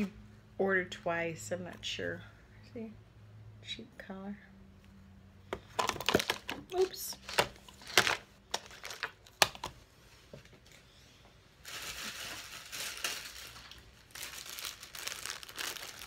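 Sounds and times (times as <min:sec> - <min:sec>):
small items clicking and knocking: 0:05.6 - 0:09.7
packaging rustling and crinkling: 0:05.8 - 0:09.6, 0:11.6 - 0:16.0.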